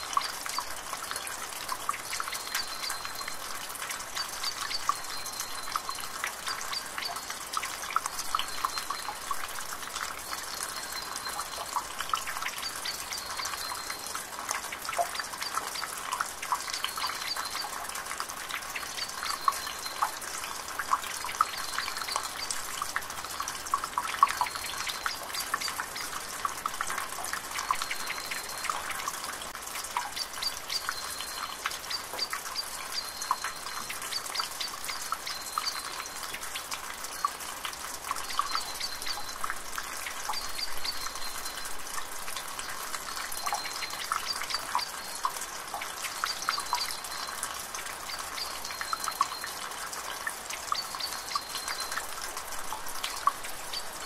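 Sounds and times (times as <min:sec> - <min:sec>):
water trickling into basin: 0:00.0 - 0:54.0.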